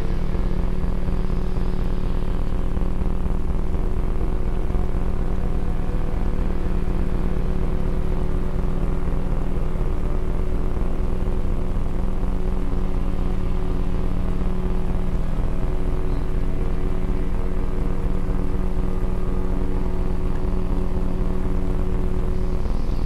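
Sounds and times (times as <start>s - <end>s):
constant low hum: 0.0s - 23.0s
low rumble and hiss: 0.0s - 23.0s.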